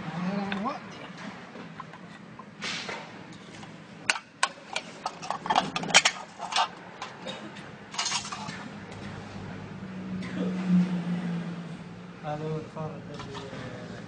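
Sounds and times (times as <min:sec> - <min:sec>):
metal can clattering on stone floor: 0:04.1 - 0:07.3, 0:07.9 - 0:08.6.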